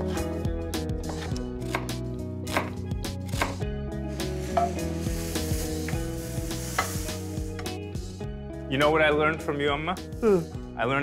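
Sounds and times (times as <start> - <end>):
meat sizzling in frying pan: 4.2 - 7.6.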